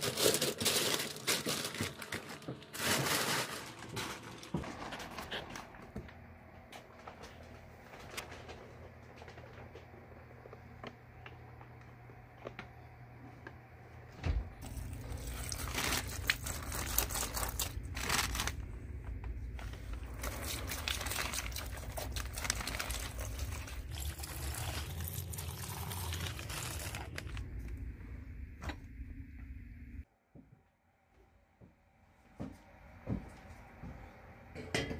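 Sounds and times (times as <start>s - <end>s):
plastic tarp crinkling: 0.0s - 5.8s, 14.6s - 18.7s, 19.5s - 27.5s.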